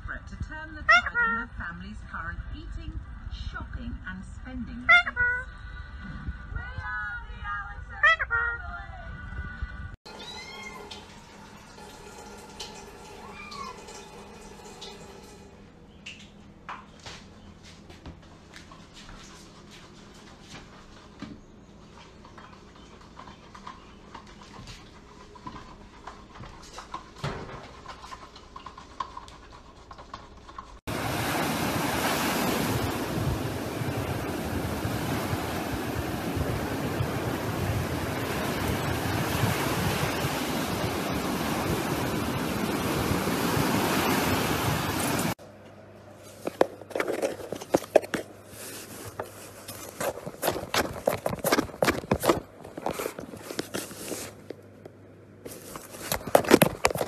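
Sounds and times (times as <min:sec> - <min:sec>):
wind on microphone: 0:05.8 - 0:10.0, 0:30.9 - 0:45.4
ocean surf breaking: 0:30.9 - 0:45.4.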